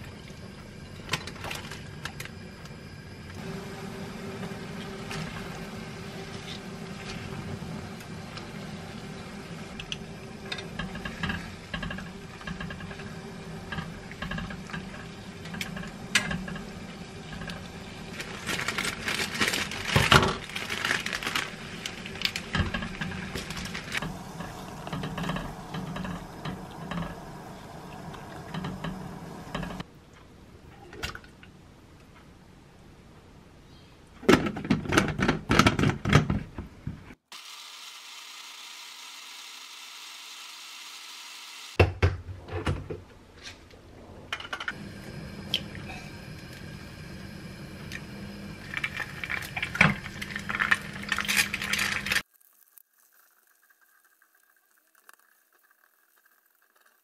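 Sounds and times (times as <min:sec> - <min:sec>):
gas stove low hum: 0:00.0 - 0:18.2, 0:21.5 - 0:29.9, 0:44.6 - 0:52.2
crinkly handling: 0:18.1 - 0:24.1
water bubbling in a pot: 0:21.5 - 0:29.9, 0:44.7 - 0:57.0.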